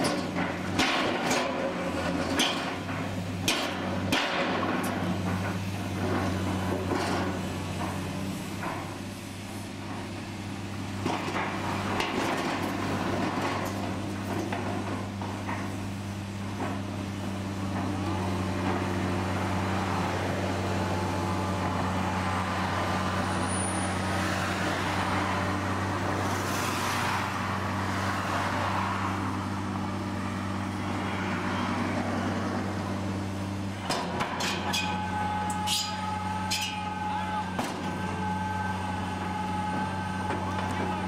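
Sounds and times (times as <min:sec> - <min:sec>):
diesel engine running: 0:00.0 - 0:41.0.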